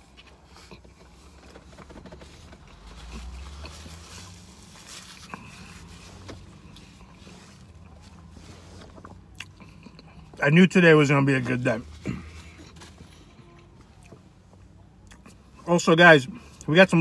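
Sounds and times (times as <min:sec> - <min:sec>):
faint chewing: 0:00.1 - 0:10.4, 0:12.1 - 0:14.3, 0:15.0 - 0:15.4.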